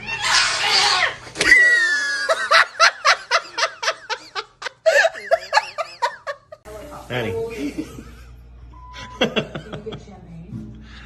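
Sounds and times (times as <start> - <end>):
person laughing hard: 1.5 - 6.6.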